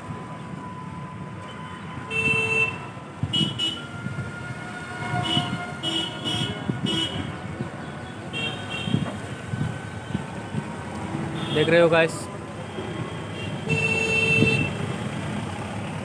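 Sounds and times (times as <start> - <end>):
road traffic noise: 0.0 - 16.0
vehicle horns tooting: 1.4 - 4.1, 4.7 - 9.2, 11.3 - 14.9.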